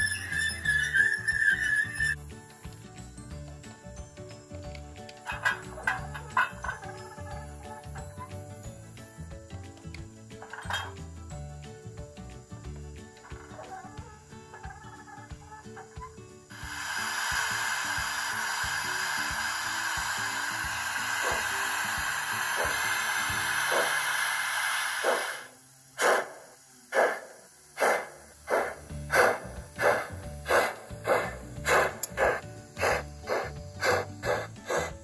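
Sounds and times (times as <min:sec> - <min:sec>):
steam hissing from small speaker: 0:16.5 - 0:35.0
steam locomotive exhaust chuffs: 0:16.5 - 0:35.0.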